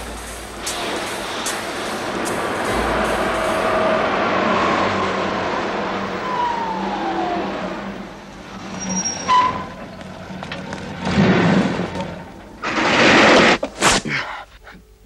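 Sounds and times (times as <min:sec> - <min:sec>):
car engine and tyre noise: 0:00.0 - 0:13.7
short high squeal: 0:08.7 - 0:09.8.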